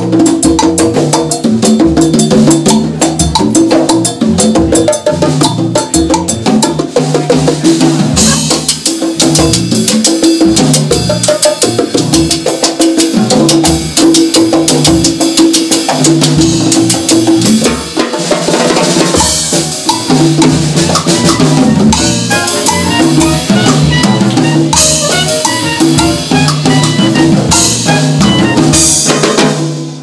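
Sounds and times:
drum kit with congas and timbales: 0:00.0 - 0:30.0
electric bass line: 0:19.2 - 0:29.1
soprano saxophone playing: 0:21.1 - 0:29.0.

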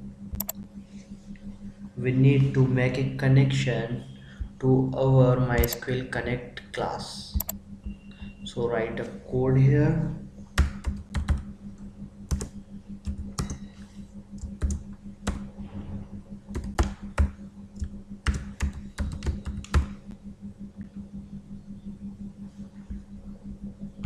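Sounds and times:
steady low hum: 0:00.0 - 0:24.0
keyboard keystroke clicks: 0:00.4 - 0:00.6, 0:07.4 - 0:07.6.

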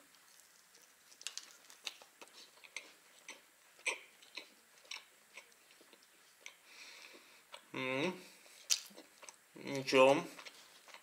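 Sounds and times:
person chewing: 0:00.0 - 0:07.7, 0:08.4 - 0:11.0
mouth clicks and smacks: 0:08.6 - 0:09.4.

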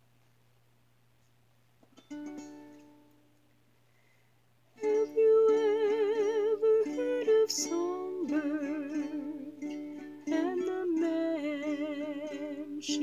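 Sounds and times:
strummed string instrument: 0:01.8 - 0:03.5, 0:04.8 - 0:13.0
person singing with vibrato: 0:04.8 - 0:13.0.

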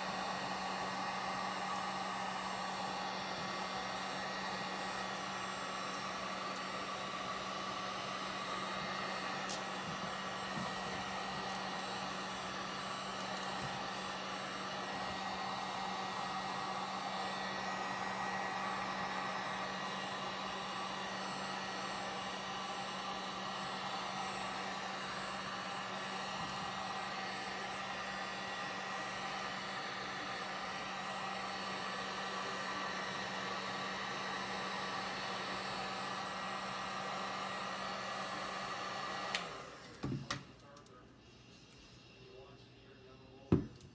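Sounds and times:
heat gun blowing: 0:00.0 - 0:40.4.

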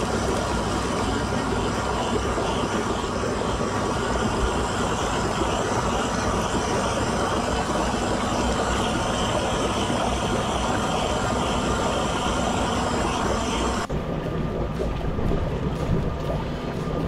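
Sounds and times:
tub jets churning water: 0:00.0 - 0:17.0
water pouring from filler: 0:00.0 - 0:17.0.

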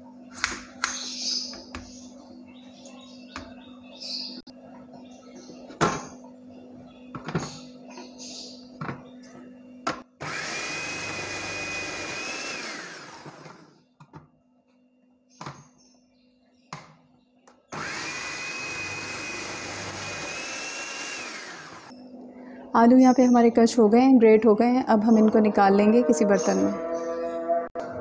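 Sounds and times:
food processor motor whining: 0:10.2 - 0:13.8, 0:17.7 - 0:21.9.

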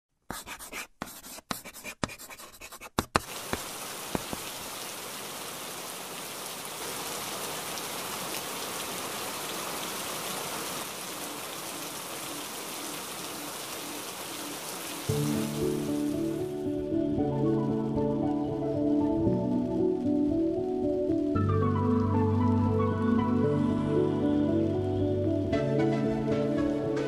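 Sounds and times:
steady rain hiss: 0:03.2 - 0:23.7.

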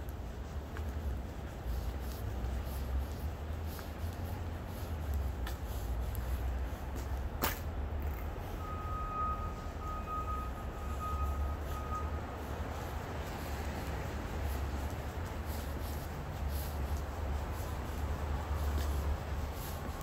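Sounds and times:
low city street rumble: 0:00.0 - 0:20.0
back-up alarm beeping: 0:08.5 - 0:12.3.

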